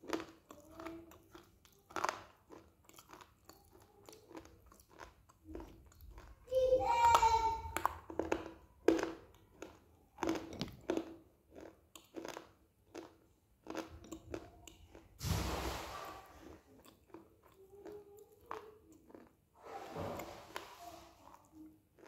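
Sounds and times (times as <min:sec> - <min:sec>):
crunching and chewing clay: 0:00.0 - 0:06.5, 0:07.1 - 0:15.2, 0:16.3 - 0:22.0.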